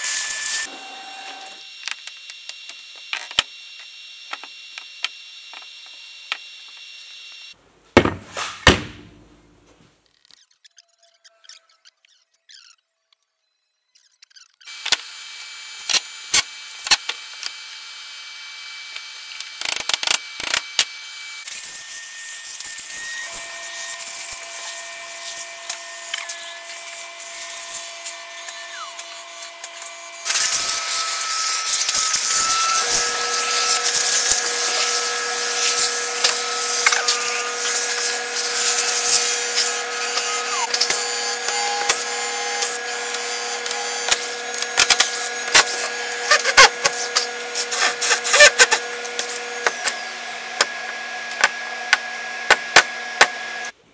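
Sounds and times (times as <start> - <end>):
router spindle cutting metal: 18.9 - 53.7.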